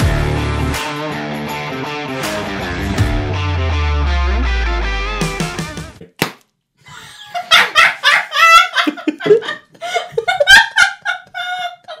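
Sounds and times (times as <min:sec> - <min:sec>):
man laughing heartily: 0:06.9 - 0:12.0.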